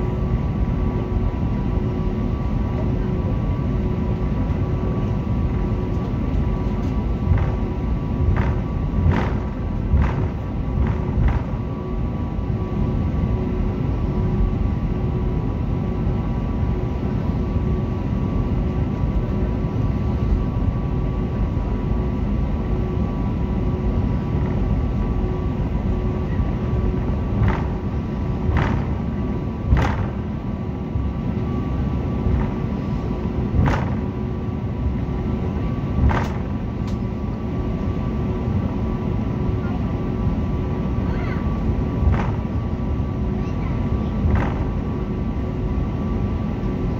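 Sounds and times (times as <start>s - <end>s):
engines and rolling wheels rumble: 0.0s - 46.9s.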